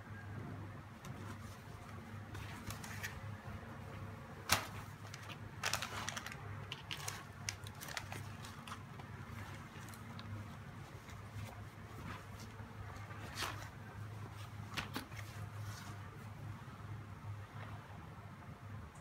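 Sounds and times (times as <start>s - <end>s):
packaging crinkling and clicking: 4.5s - 10.3s.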